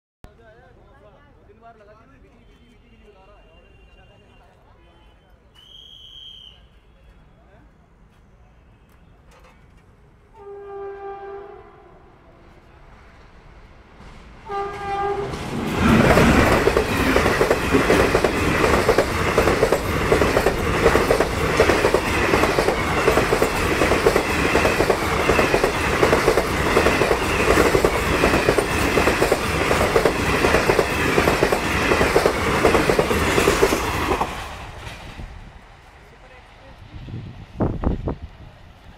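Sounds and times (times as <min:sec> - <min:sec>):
train horn: 0:10.3 - 0:12.7, 0:14.4 - 0:15.4
train rushing past: 0:10.3 - 0:38.9
wheels clacking over rail joints: 0:14.8 - 0:35.1.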